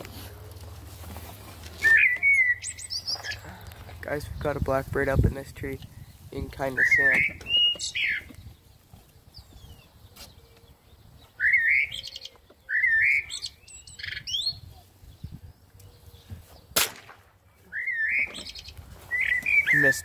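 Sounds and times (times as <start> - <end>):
bird whistling with buzzy trill: 1.8 - 3.3, 11.4 - 14.6, 17.7 - 20.0
pellet gun shot: 16.8 - 17.4.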